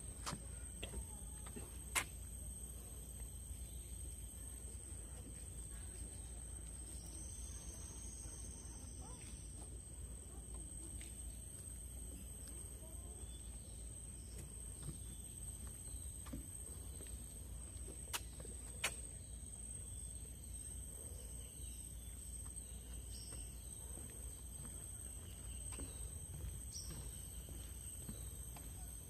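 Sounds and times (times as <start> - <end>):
faint bird-like chirps: 5.7 - 9.8.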